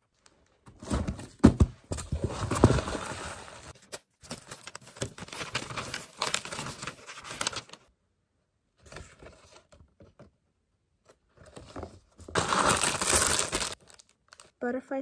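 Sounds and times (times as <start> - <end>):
paper and cardboard box rustling: 0.6 - 7.8, 11.4 - 14.5.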